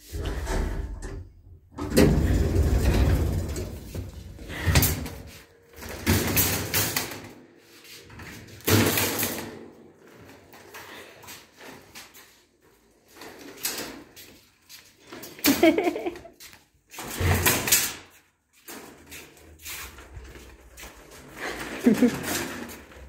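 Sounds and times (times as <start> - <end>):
shopping trolley rattling: 1.9 - 7.4, 18.6 - 23.0.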